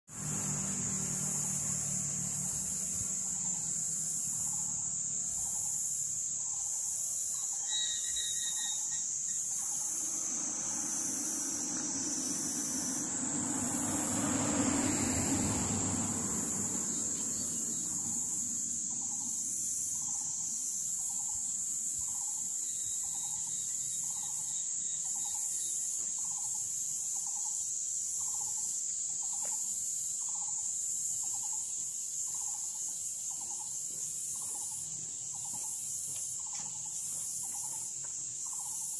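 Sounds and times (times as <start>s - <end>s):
vehicle passing on road: 0.1s - 5.8s, 9.4s - 20.2s
insects trilling: 0.1s - 38.9s.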